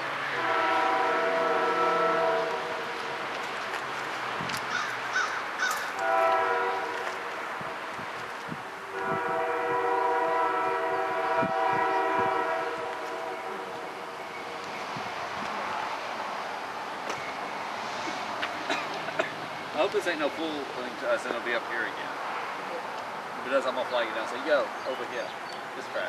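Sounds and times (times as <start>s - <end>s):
locomotive air horn: 0.2s - 3.4s, 5.9s - 7.8s, 8.8s - 14.2s.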